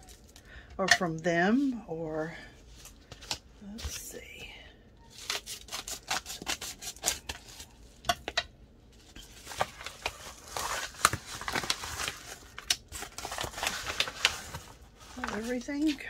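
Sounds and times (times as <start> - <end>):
plastic bag crinkling: 9.2 - 16.0.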